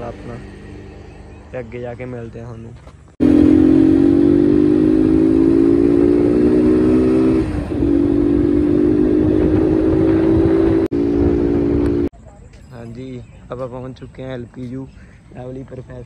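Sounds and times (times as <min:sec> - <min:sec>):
motorcycle engine running at speed: 0:00.0 - 0:12.1
wind rush on microphone: 0:06.0 - 0:12.1.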